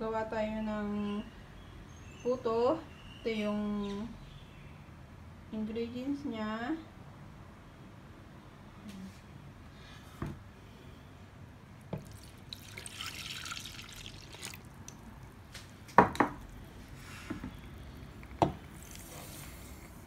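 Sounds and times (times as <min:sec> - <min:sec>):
sugar pouring hiss: 0:12.0 - 0:15.4, 0:16.9 - 0:20.0
milk pouring and splashing: 0:12.0 - 0:15.6
knocks against a bowl: 0:16.0 - 0:16.4.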